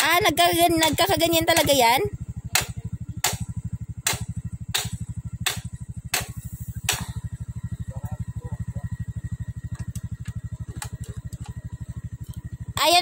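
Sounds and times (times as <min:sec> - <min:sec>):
motorcycle engine idling: 0:00.0 - 0:13.0
sharp metallic clicks: 0:00.8 - 0:07.2.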